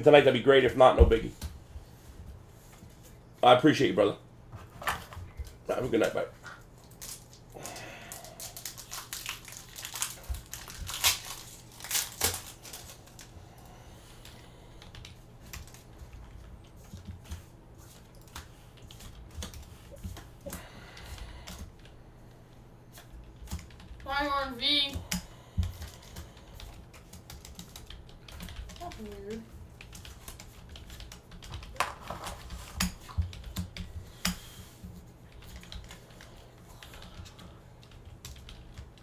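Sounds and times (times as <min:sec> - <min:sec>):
foil pack tearing: 0:06.9 - 0:13.0.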